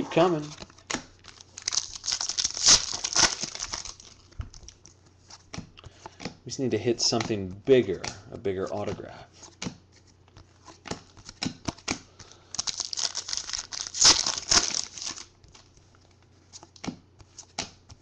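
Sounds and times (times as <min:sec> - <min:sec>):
foil wrapper tearing and crinkling: 0:01.2 - 0:04.8, 0:12.5 - 0:15.3.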